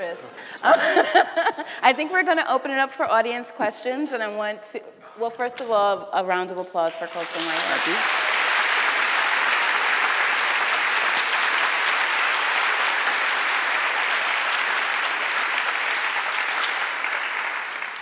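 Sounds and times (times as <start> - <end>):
audience applauding: 7.0 - 18.0.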